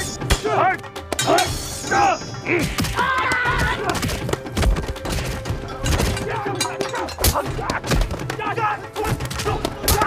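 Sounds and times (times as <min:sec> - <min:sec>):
background music: 0:00.0 - 0:10.0
thuds and clashes of fighting: 0:02.6 - 0:10.0.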